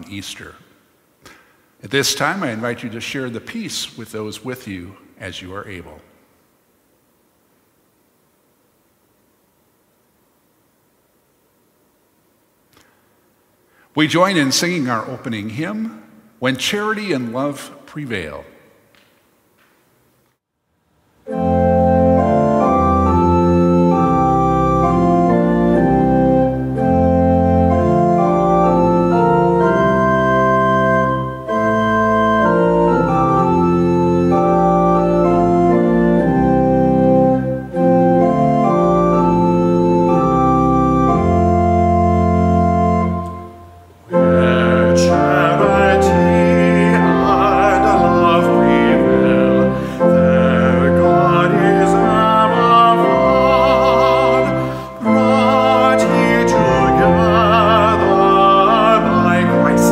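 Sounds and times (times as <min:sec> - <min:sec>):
organ playing hymn chords: 0:00.0 - 0:00.7, 0:01.8 - 0:06.0, 0:13.7 - 0:18.6, 0:21.1 - 0:59.9
singing with vibrato: 0:44.1 - 0:59.9.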